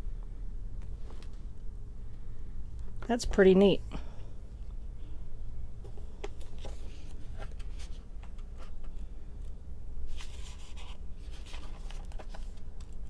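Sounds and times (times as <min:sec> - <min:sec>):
riffle of pages: 0:10.1 - 0:13.0
thin pages turning: 0:10.1 - 0:13.0.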